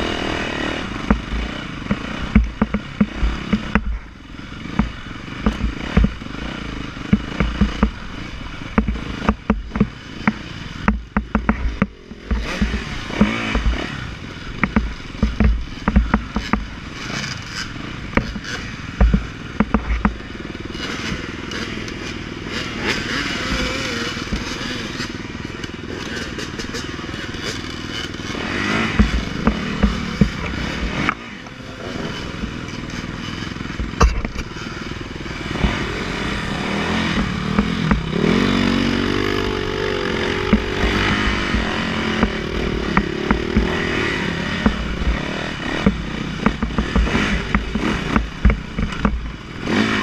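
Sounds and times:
dirt bike engines idling and revving: 0.0s - 50.0s
knocks and clatter of bikes: 0.0s - 50.0s.

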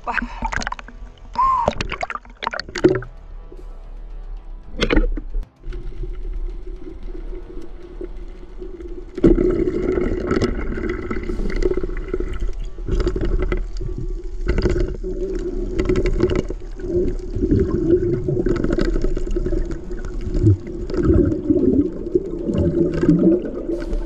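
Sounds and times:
underwater gurgling and bubbling: 4.8s - 24.0s.

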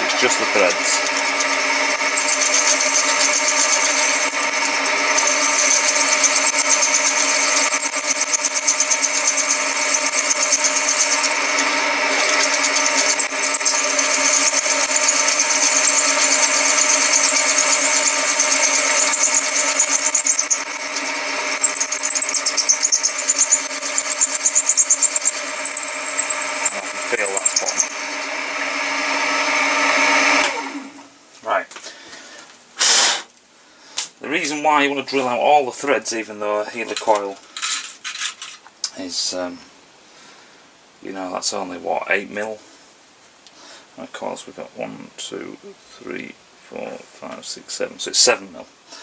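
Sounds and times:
drill bit cutting metal: 0.0s - 30.6s
drill motor hum: 0.0s - 31.1s.

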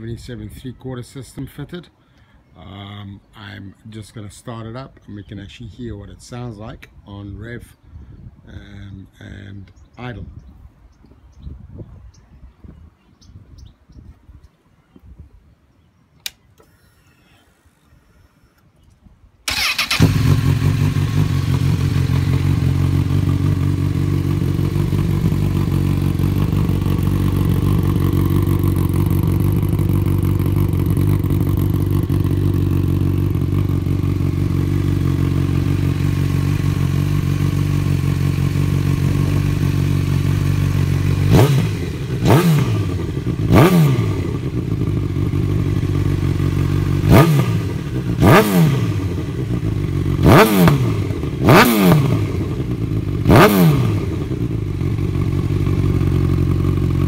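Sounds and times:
motorcycle engine idling: 19.5s - 57.0s
motorcycle engine revving: 19.5s - 57.0s.

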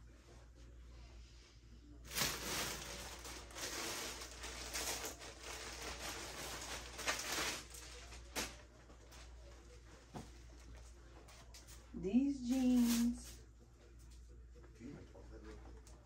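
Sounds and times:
clothes rustling: 2.1s - 11.9s.

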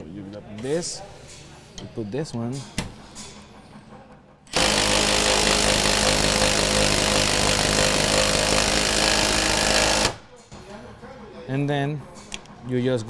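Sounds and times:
power drill running: 4.5s - 10.2s.

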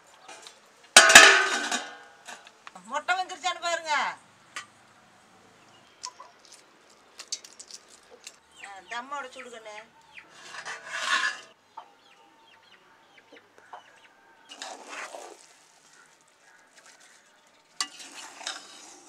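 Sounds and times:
chickens clucking: 8.1s - 17.2s
metal lid scraping: 10.3s - 11.6s, 17.8s - 19.0s.

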